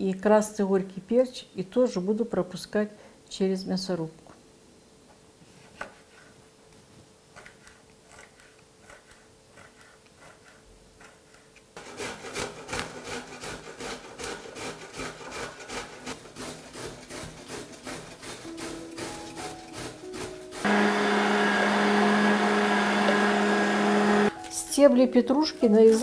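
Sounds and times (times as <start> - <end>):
grating on metal grater: 7.4 - 21.6.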